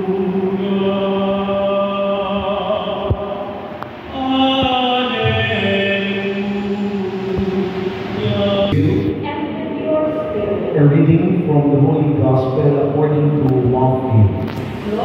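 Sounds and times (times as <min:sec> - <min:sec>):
choir singing slow chant: 0:00.0 - 0:10.9.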